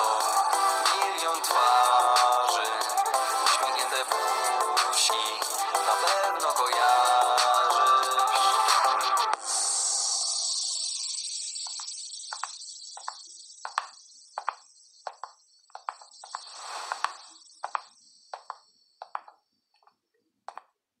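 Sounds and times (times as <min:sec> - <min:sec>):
hiss: 0:09.4 - 0:12.0, 0:16.4 - 0:17.4
heeled footsteps on hard floor: 0:12.3 - 0:20.7.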